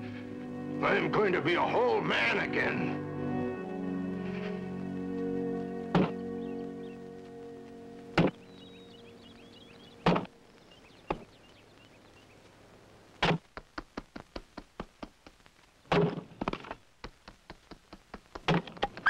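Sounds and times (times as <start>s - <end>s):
faint bird chirps: 8.2s - 12.5s.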